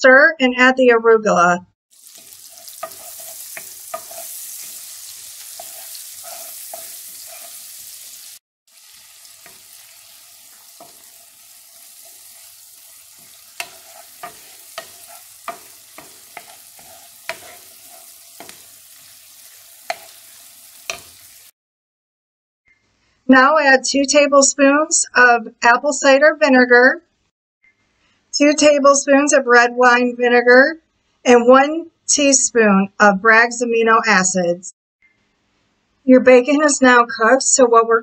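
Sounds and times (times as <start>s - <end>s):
onion sizzling in a frying pan: 1.9s - 21.5s
spatula tapping and scraping pan: 2.1s - 7.8s, 9.3s - 21.4s.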